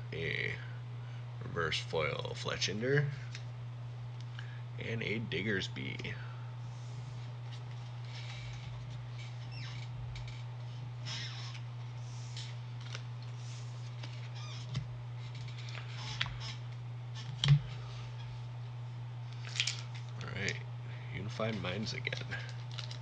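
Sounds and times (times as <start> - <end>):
low hum: 0.0 - 23.0
cards and wrappers rustling: 19.4 - 20.6, 21.5 - 23.0.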